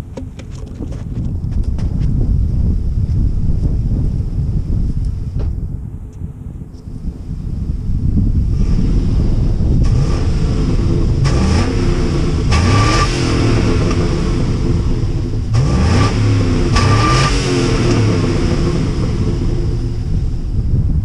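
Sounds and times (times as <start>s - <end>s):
car engine revving: 6.9s - 21.0s.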